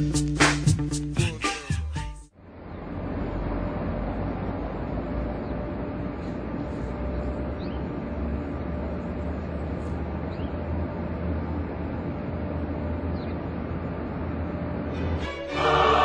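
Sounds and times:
low street ambience rumble: 0.0 - 16.0
choral music: 14.9 - 16.0.

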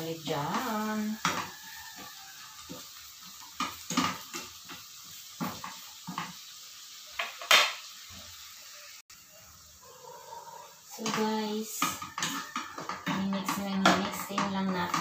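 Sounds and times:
vegetables sizzling in pan: 0.0 - 15.0
spatula scraping and knocking pan: 0.3 - 7.9, 10.8 - 15.0.

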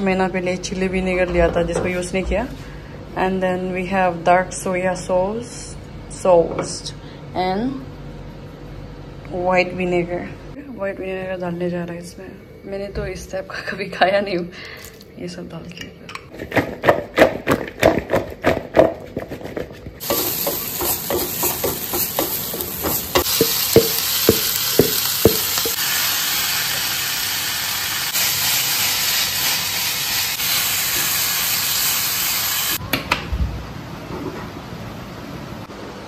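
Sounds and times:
vegetables sizzling in frying pan: 20.0 - 32.8.

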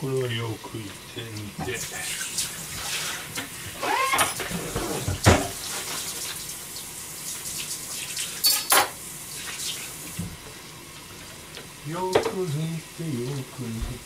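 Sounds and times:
water simmering in saucepans: 0.0 - 14.0
kitchenware clinking: 8.4 - 9.0.

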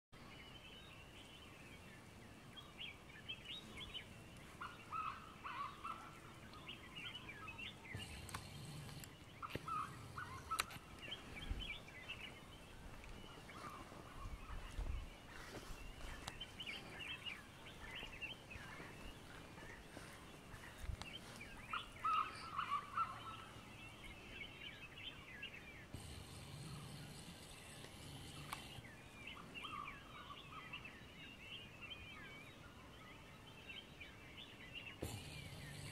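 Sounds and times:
birds chattering: 0.2 - 35.9
lower-pitched bird calls: 2.7 - 33.9.

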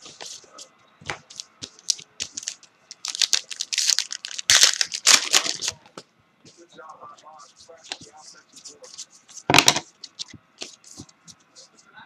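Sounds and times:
packaging crinkling and tearing: 1.9 - 5.8.

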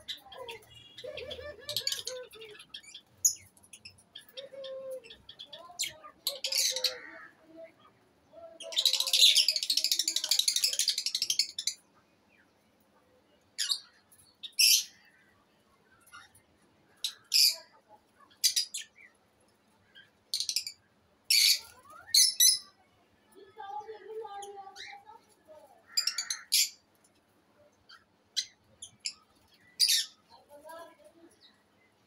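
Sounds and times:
lovebirds squawking and chirping: 0.0 - 11.9, 13.6 - 19.2, 19.8 - 22.8, 24.4 - 26.9, 27.8 - 30.5.

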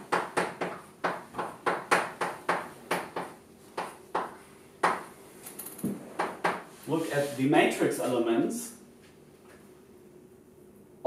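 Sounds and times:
chalk tapping on chalkboard: 0.0 - 5.1, 5.8 - 6.8.

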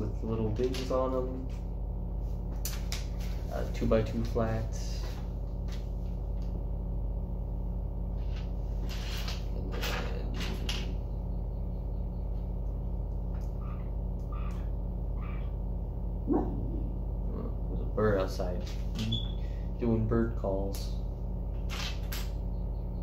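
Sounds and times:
low electrical hum: 0.0 - 23.0
faint bird chirps: 10.9 - 15.6, 22.4 - 23.0.

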